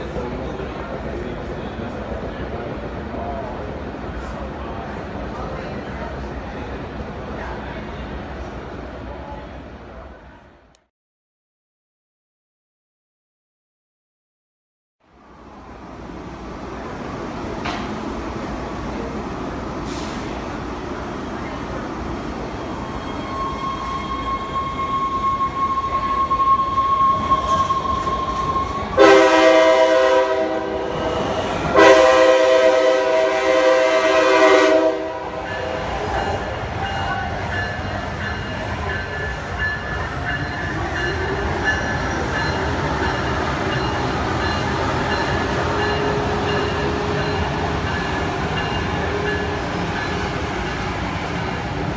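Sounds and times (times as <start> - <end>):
trains running through station: 0.0 - 10.9, 15.0 - 51.9
train horn blasts: 27.2 - 36.1.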